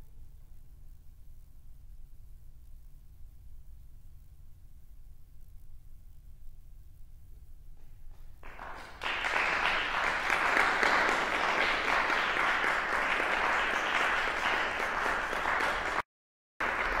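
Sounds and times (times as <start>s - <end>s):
audience applauding: 8.4s - 16.0s, 16.6s - 17.0s.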